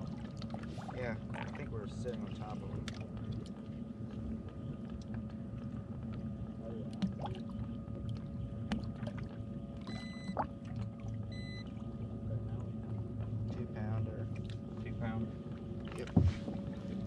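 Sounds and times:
water pouring and gurgling: 0.0 - 3.7, 5.0 - 11.9
pump humming: 0.0 - 17.0
short electronic beeps: 9.9 - 10.4, 11.3 - 11.6
light knocks on boat: 15.9 - 16.6.

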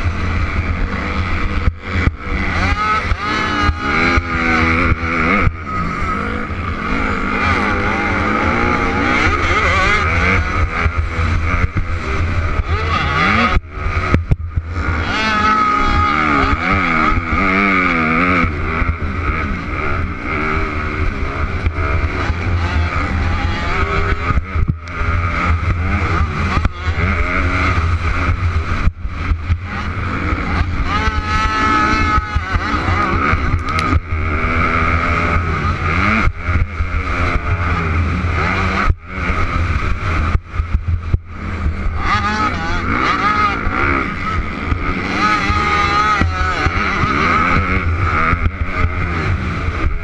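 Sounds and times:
dirt bike engine revving: 0.0 - 50.0
wind rumble on microphone: 0.0 - 50.0.

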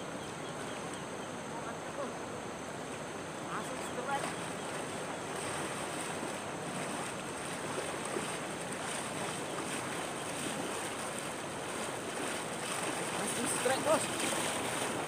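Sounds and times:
river rushing over stones: 10.5 - 15.0.

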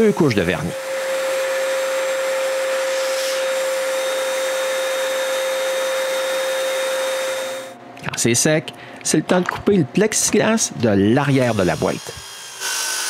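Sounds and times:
compressed air hose whining: 0.0 - 7.8.

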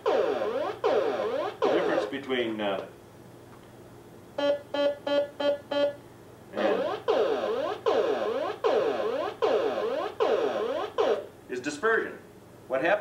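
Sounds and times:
falling electronic chirps: 4.4 - 6.0, 6.6 - 11.3
short electronic beeps: 4.4 - 6.0.

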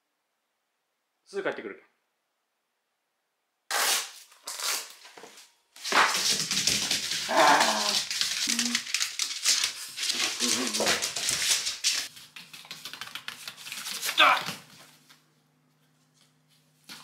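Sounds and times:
claws clicking on wooden floor: 5.9 - 14.6.

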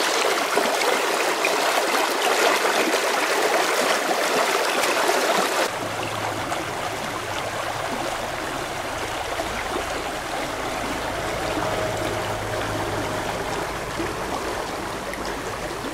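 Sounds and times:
stream rushing over rocks: 0.0 - 15.9.

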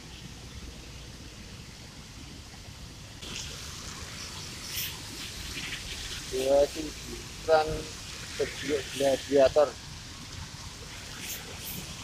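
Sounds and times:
low rumble of passing traffic: 0.0 - 12.0
tyres hissing on wet road: 3.2 - 12.0.

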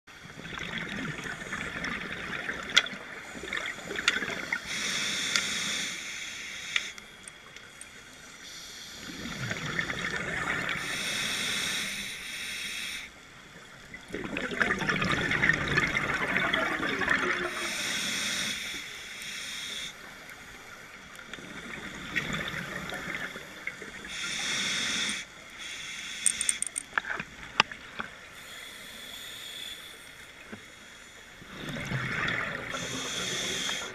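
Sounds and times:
bubbling gurgling exhale: 0.2 - 4.9, 9.0 - 11.2, 14.0 - 17.8, 21.4 - 24.1, 31.4 - 33.9
diver inhaling through regulator: 3.9 - 7.0, 10.8 - 13.1, 17.5 - 20.0, 24.1 - 26.8, 28.4 - 30.3, 32.6 - 33.9.

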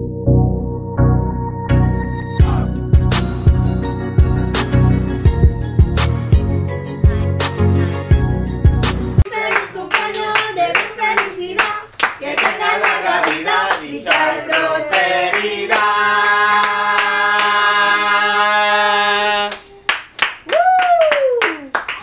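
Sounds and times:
group singing a celebration song: 9.2 - 19.8
hand-clapping: 9.4 - 15.9, 19.5 - 22.0
cheering whoop: 20.5 - 21.7.

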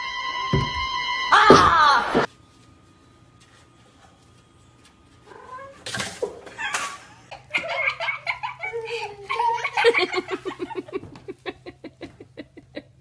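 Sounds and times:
person laughing hard: 6.6 - 13.0.

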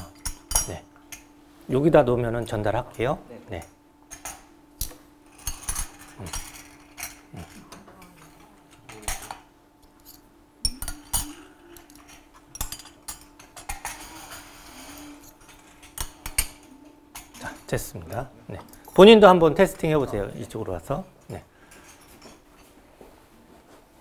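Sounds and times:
faint steady hum: 0.0 - 24.0
cutlery and dishes clinking: 5.3 - 19.0.

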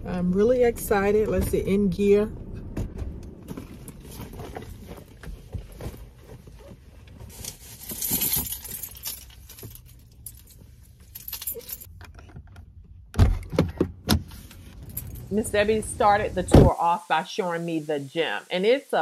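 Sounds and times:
leather handbag rustling: 3.5 - 11.9
keys jangling: 7.8 - 11.9, 14.8 - 15.3.

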